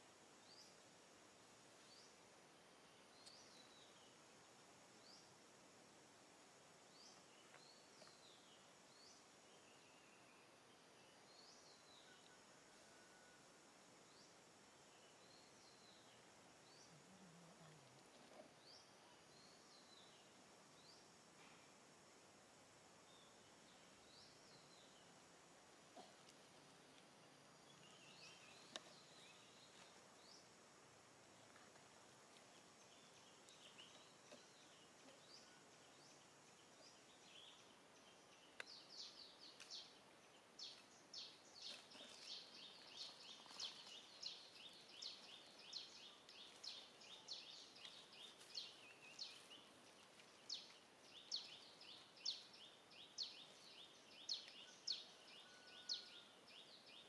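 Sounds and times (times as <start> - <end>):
faint outdoor background: 0.0 - 57.0.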